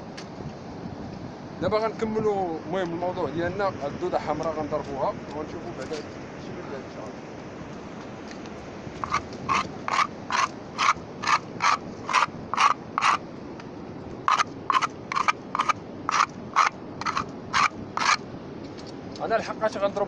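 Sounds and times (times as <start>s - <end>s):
rhythmic scraping on rock: 9.0s - 13.2s, 14.3s - 18.2s.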